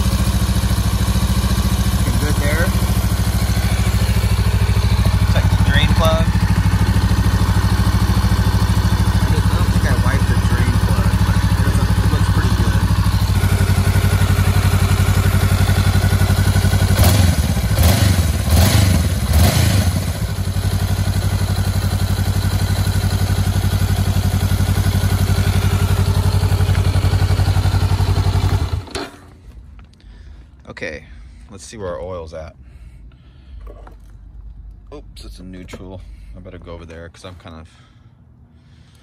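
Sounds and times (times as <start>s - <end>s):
motorcycle engine idling: 0.0s - 30.4s.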